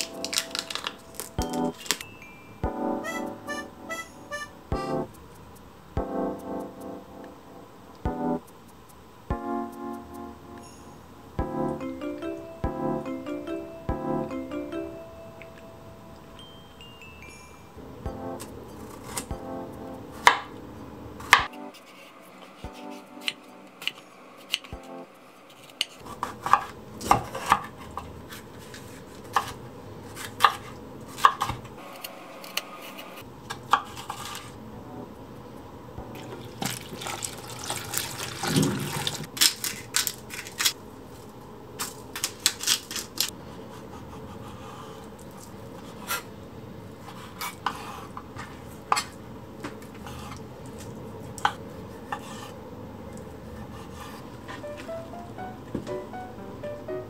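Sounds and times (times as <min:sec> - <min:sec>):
tap water running into bowl: 0:36.2 - 0:39.3.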